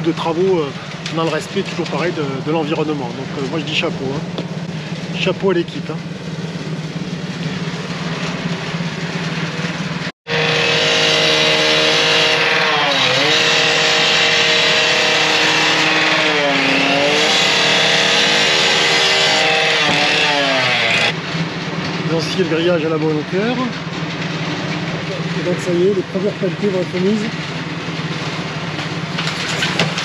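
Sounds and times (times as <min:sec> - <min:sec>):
low engine hum: 0:00.0 - 0:10.2
machine motor running: 0:06.6 - 0:21.1.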